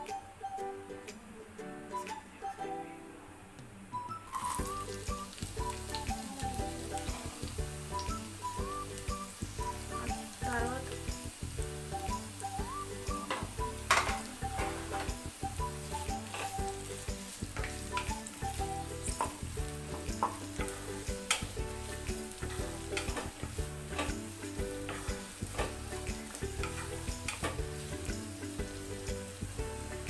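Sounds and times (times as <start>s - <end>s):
onions sizzling in oil: 4.0s - 30.0s.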